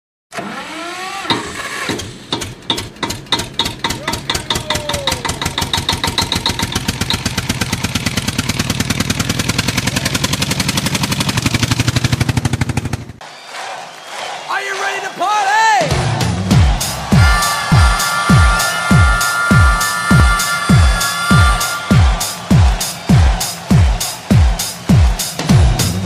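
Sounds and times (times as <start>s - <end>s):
engine starting and revving: 0.3s - 13.2s.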